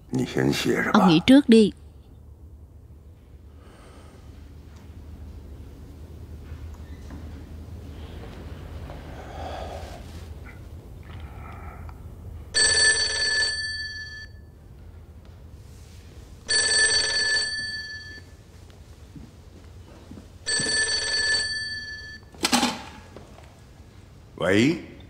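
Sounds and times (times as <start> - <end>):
telephone ringing: 12.6 - 14.4, 16.5 - 18.2, 20.5 - 22.4.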